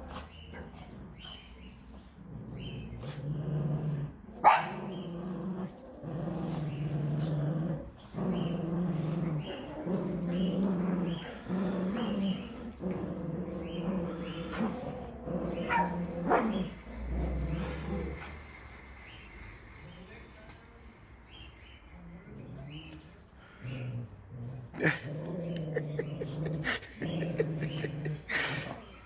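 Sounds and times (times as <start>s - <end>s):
dogs growling in play: 0.0s - 19.6s, 21.3s - 29.0s.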